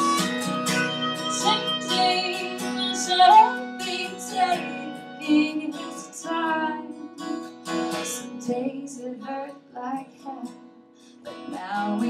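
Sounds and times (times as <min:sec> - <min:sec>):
woodwind melody: 0:00.0 - 0:05.8
strummed acoustic guitar: 0:00.0 - 0:12.0
woman singing: 0:01.0 - 0:10.7, 0:11.3 - 0:12.0.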